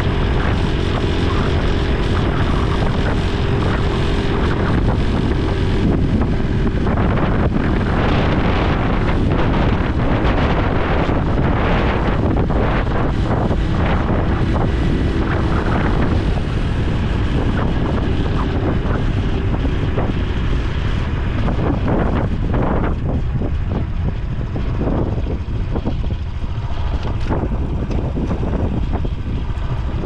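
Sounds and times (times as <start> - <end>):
motorcycle engine running: 0.0 - 30.0
wind rush on microphone: 0.0 - 30.0.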